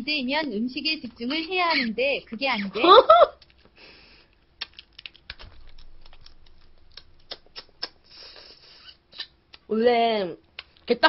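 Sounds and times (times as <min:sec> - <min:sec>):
crab shell cracking: 0:03.4 - 0:08.0
sucking hisses: 0:07.8 - 0:09.3.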